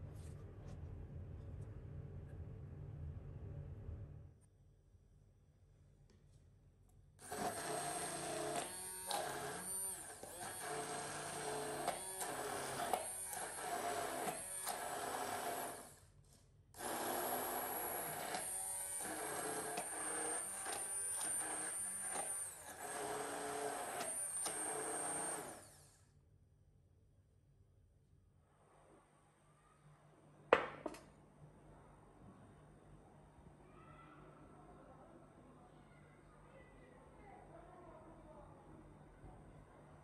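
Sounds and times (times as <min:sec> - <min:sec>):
immersion blender whining: 0:07.2 - 0:16.0, 0:16.8 - 0:26.0.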